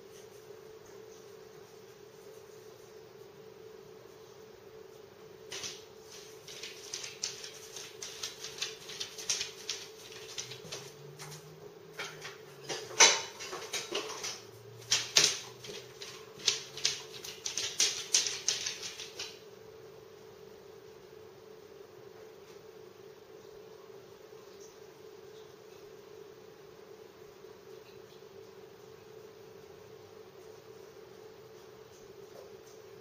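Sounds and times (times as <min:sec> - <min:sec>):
dog claws clicking on floor: 0:05.5 - 0:19.4.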